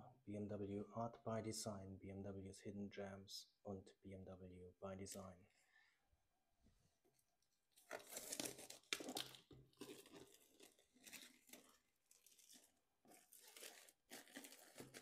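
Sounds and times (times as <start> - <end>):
plastic shrink-wrap tearing: 7.8 - 15.0.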